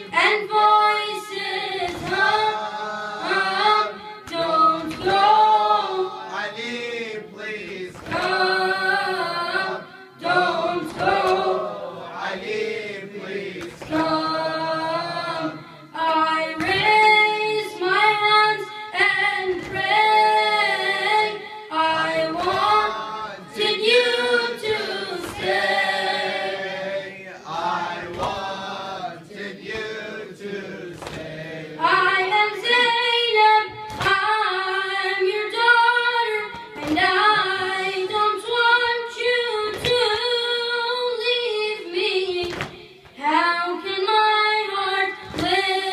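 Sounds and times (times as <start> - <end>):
boy singing a cappella lament: 0.0 - 7.4, 8.1 - 13.2, 13.8 - 26.3, 31.7 - 45.9
sharp rhythmic beats: 1.4 - 17.3, 18.6 - 32.8.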